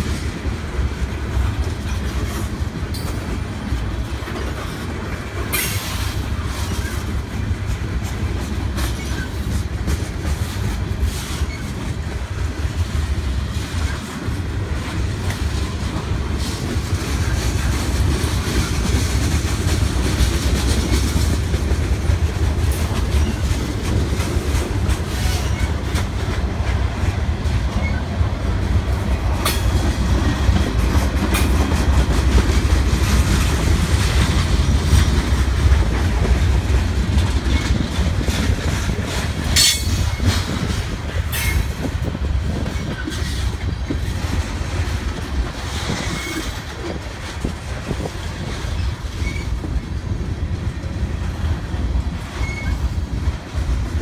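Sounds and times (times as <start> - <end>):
train wheels rumbling on rails: 0.0 - 54.0
sharp metal clanks: 39.6 - 40.1
wheel squeals: 52.4 - 52.9.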